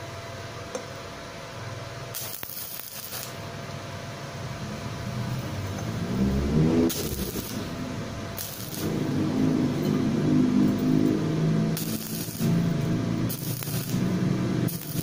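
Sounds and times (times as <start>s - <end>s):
low steady hum: 0.0s - 15.0s
welding arc hissing and crackling: 2.0s - 3.5s, 6.6s - 9.4s, 10.6s - 15.0s.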